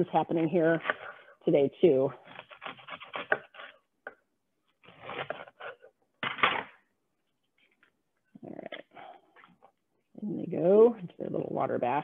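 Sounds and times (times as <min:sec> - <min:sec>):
knife cutting artichoke: 0:00.3 - 0:01.3, 0:02.2 - 0:04.2, 0:04.8 - 0:05.9.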